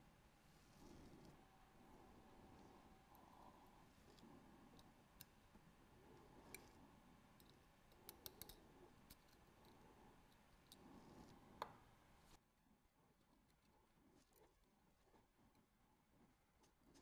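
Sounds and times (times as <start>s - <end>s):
tweezers clicking on watch parts: 7.4s - 9.5s.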